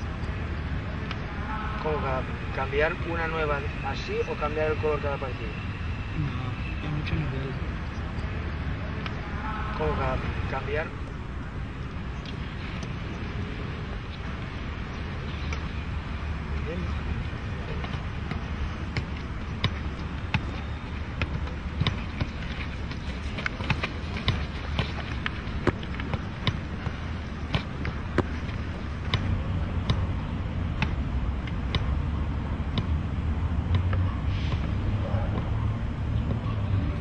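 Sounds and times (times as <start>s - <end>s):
football kicked thuds: 17.7s - 30.1s.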